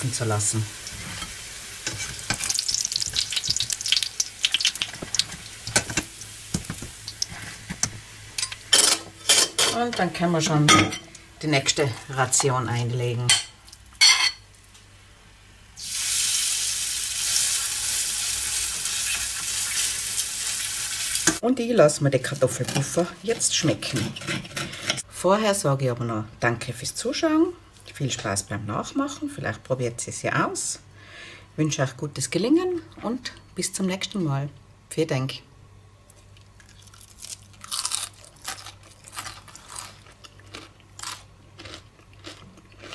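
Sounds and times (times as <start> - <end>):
batter sizzling in hot oil: 0.0 - 8.6, 15.8 - 21.4
person chewing crunchy food: 36.3 - 42.9.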